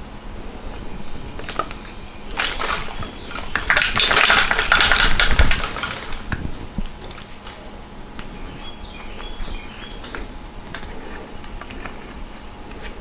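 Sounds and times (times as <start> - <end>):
metal tools clinking and rattling: 1.4 - 6.4.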